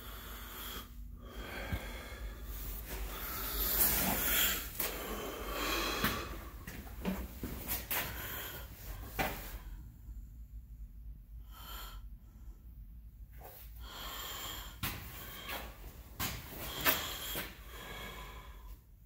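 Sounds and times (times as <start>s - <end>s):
close breathing: 0.0s - 10.2s, 11.4s - 12.8s, 13.4s - 19.0s.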